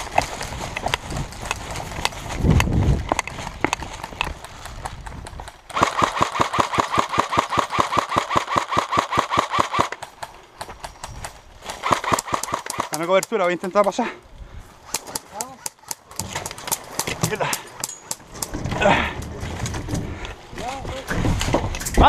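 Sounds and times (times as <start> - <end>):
airsoft rifle full-auto burst: 5.7 - 10.0, 11.7 - 13.0.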